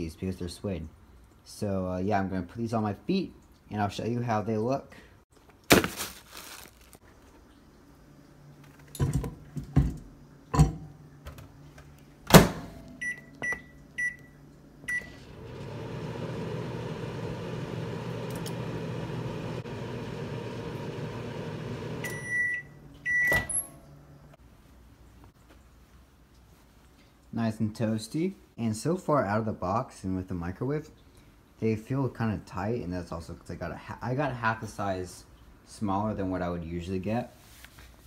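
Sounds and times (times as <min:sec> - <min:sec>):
microwave door clunk: 0:12.3 - 0:12.8
microwave oven humming: 0:12.3 - 0:24.3.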